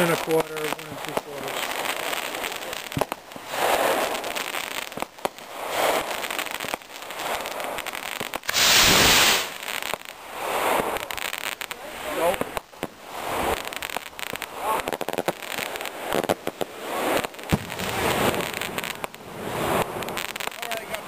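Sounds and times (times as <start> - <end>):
sharp pops and crackles: 0.0 - 21.0
rocket launch whoosh: 8.4 - 9.7.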